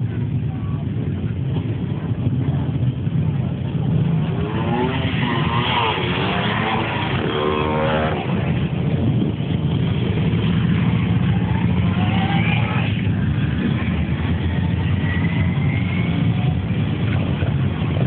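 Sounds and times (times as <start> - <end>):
crowd voices: 0.0 - 18.0
motorcycle engines rumbling: 0.0 - 18.0.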